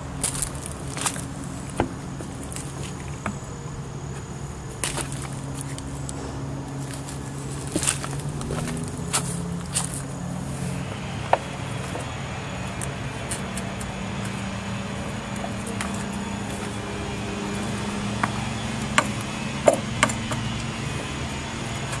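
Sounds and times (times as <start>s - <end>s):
low engine hum: 0.0s - 22.0s
sharp clicks and knocks: 18.1s - 20.7s.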